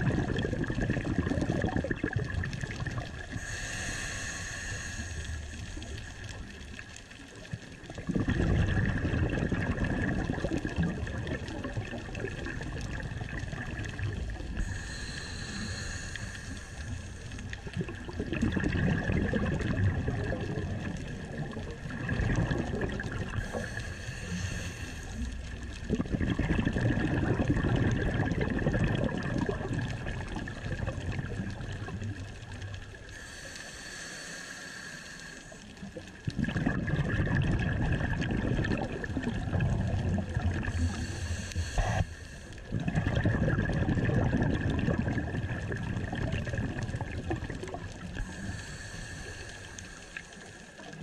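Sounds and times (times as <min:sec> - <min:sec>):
exhaust bubbles gurgling: 0:00.0 - 0:33.4, 0:35.5 - 0:51.0
regulator inhale hiss: 0:03.2 - 0:06.8, 0:14.5 - 0:17.7, 0:23.3 - 0:25.6, 0:32.6 - 0:36.2, 0:40.7 - 0:42.7, 0:48.0 - 0:51.0.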